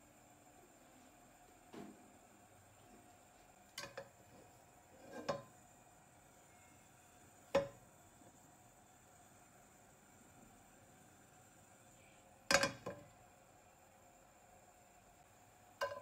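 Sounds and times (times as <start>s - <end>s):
frying pan clunking on hob: 5.2s - 5.6s, 7.5s - 7.8s, 12.5s - 13.1s, 15.8s - 16.0s.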